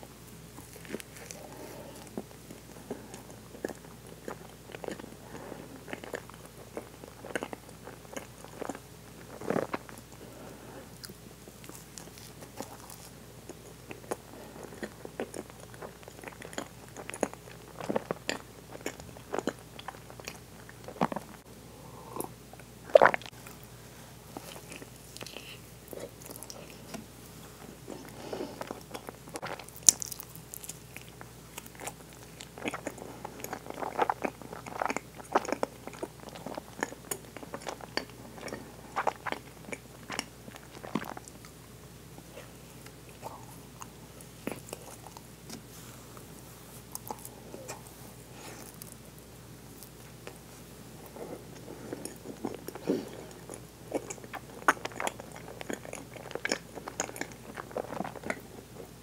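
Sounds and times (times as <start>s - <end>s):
chewing and wet mouth clicks: 28.6s - 41.6s, 51.6s - 58.4s.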